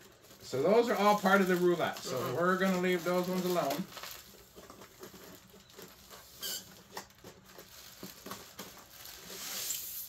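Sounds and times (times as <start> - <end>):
brief high squeak: 6.4 - 6.7.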